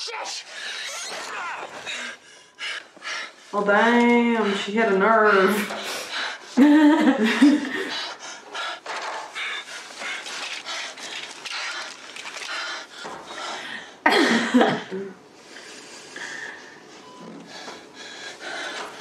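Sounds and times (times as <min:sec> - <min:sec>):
rapid heavy panting: 0:01.7 - 0:14.0, 0:17.5 - 0:19.0
woman laughing: 0:06.6 - 0:08.0.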